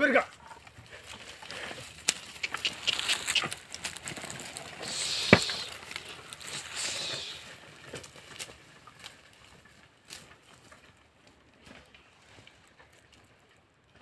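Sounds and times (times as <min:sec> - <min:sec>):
hooves and footsteps crunching: 0:00.0 - 0:14.0
plough scraping hiss: 0:01.0 - 0:08.1.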